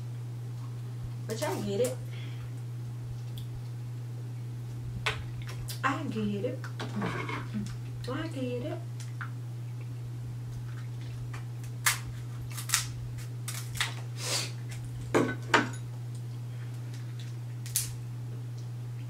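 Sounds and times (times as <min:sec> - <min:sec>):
steady low hum: 0:00.0 - 0:19.0
shells cracking: 0:11.6 - 0:14.0, 0:17.6 - 0:18.0
shears snipping shells: 0:11.8 - 0:14.0.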